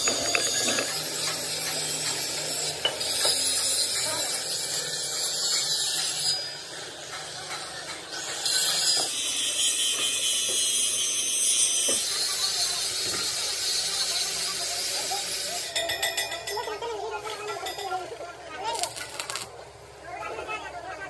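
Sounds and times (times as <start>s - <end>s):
arc welding crackling hiss: 18.6s - 19.6s.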